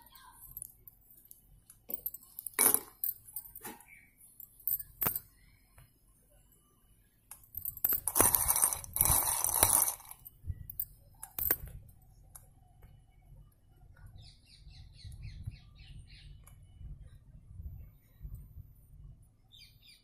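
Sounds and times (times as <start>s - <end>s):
pencil pieces clinking on glass: 7.6s - 11.6s.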